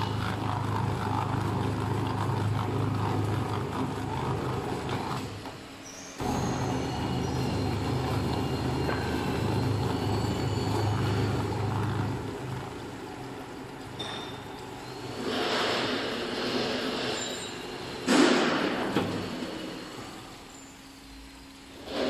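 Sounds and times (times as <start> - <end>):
machine motor humming: 0.0 - 20.5
high squeal of metal on metal: 5.9 - 12.2, 16.9 - 18.0.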